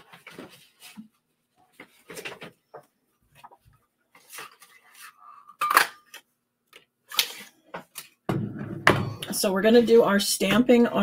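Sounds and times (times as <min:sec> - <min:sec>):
paper rustling: 0:00.0 - 0:02.5, 0:03.3 - 0:05.2.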